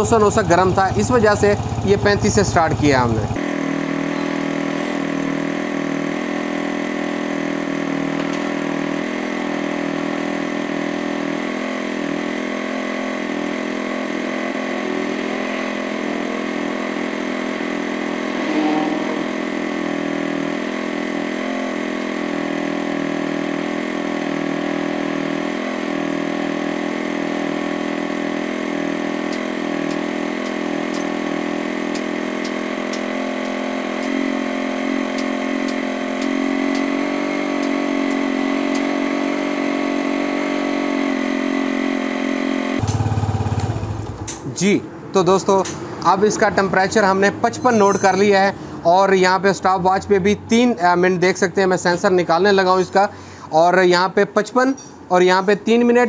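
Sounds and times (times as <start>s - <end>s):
motorcycle engine idling: 0.0s - 5.4s, 42.8s - 44.4s.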